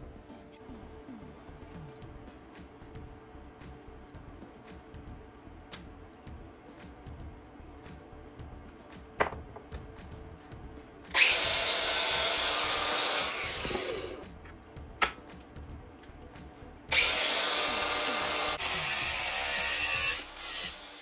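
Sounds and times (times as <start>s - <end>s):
angle grinder grinding metal: 11.1s - 14.4s, 16.9s - 21.0s.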